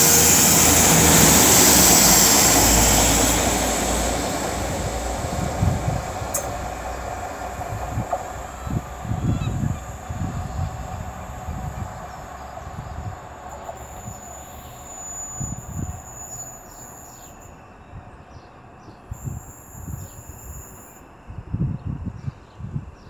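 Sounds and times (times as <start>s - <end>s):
wind buffeting microphone: 0.0s - 14.3s, 21.3s - 23.0s
diesel train engine departing: 0.0s - 23.0s.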